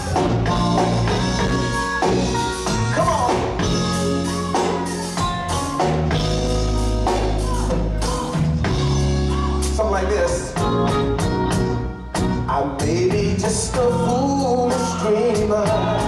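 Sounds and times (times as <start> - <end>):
bass guitar low notes: 0.0 - 16.0
drum kit: 0.0 - 16.0
guitar and keyboards: 0.0 - 16.0
man singing: 2.6 - 11.1, 12.4 - 16.0.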